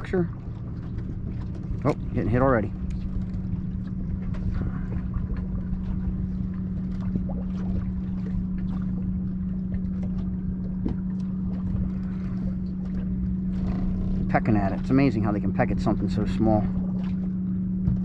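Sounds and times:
electric trolling motor hum: 0.0 - 18.0
wind rumbling on microphone: 0.0 - 18.0.

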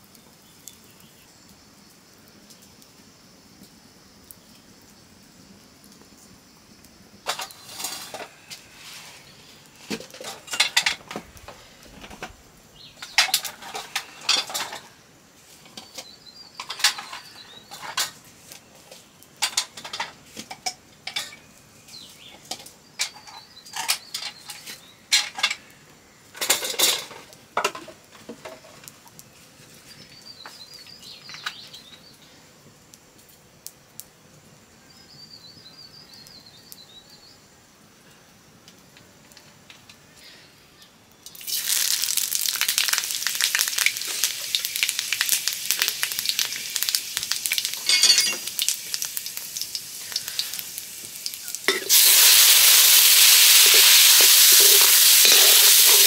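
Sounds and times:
metal utensils clinking on dishes: 10.0 - 11.0, 13.0 - 14.9, 16.6 - 18.2, 19.4 - 21.4, 26.4 - 27.8, 47.8 - 48.5
birds chirping: 12.6 - 14.3, 15.8 - 18.0, 29.8 - 32.4.

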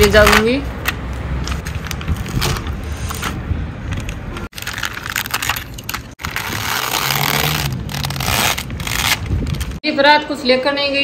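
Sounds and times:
brittle discs crackling and crunching: 1.5 - 9.8
plastic sheet rustling: 4.1 - 9.8.

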